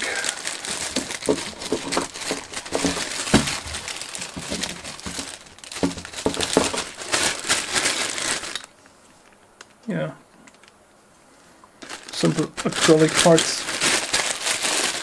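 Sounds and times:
plastic bags crinkling: 0:00.0 - 0:08.8, 0:11.8 - 0:15.0.

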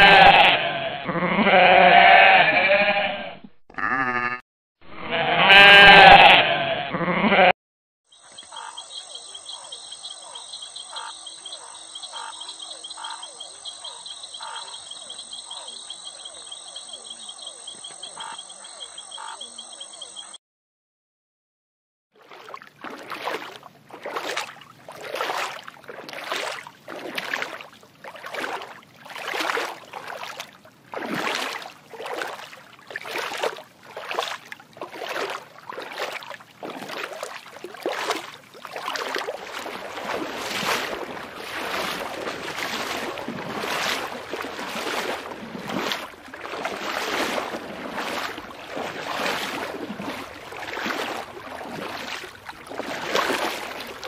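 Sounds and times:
bear splashing through water: 0:22.2 - 0:54.0.

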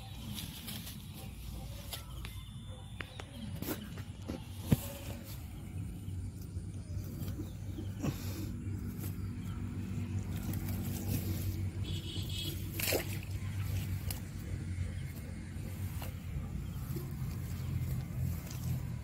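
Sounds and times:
net rustling and scraping on grass: 0:00.0 - 0:02.3, 0:03.6 - 0:19.0.

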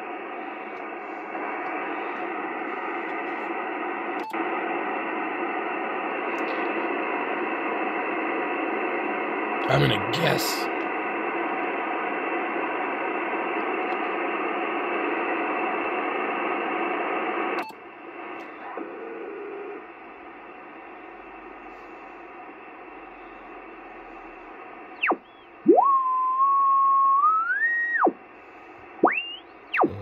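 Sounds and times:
radio band noise hiss: 0:00.0 - 0:30.0
tuning whistle sweeping: 0:29.0 - 0:29.9.

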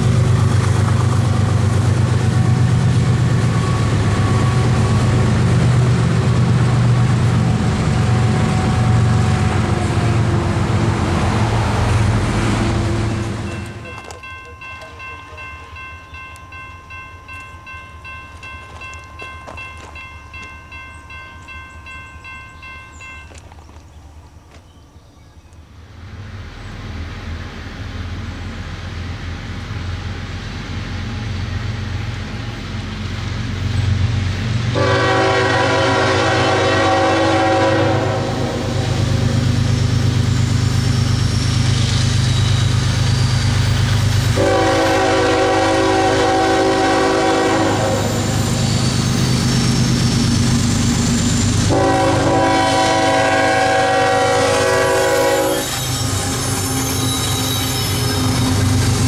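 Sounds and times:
locomotive engine rumble: 0:00.0 - 0:59.0
train air horn blasts: 0:03.4 - 0:05.3, 0:07.6 - 0:10.9, 0:34.7 - 0:39.2, 0:44.3 - 0:48.5, 0:51.6 - 0:58.6.

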